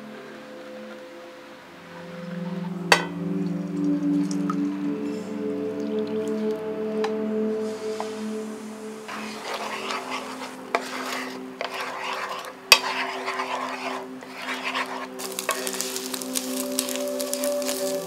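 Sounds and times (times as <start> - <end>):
eggs sizzling in hot oil: 9.1 - 18.0
spatula scraping a pan: 9.1 - 18.0.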